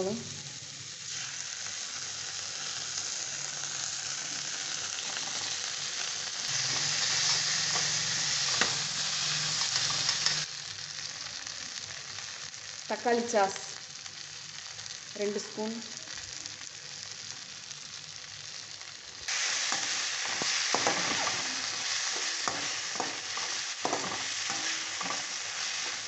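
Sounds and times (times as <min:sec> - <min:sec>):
vegetables sizzling in hot oil: 0:00.0 - 0:26.0
metal spatula stirring in pan: 0:19.3 - 0:26.0.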